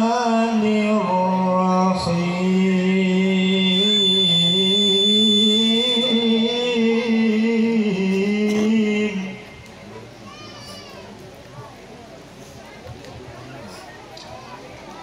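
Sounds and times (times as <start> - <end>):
man chanting over loudspeaker: 0.0 - 9.7.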